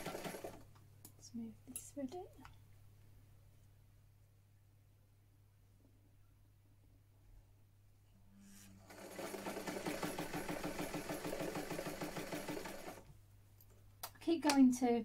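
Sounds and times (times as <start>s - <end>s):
sewing machine stitching: 0.0s - 0.6s, 8.6s - 13.0s.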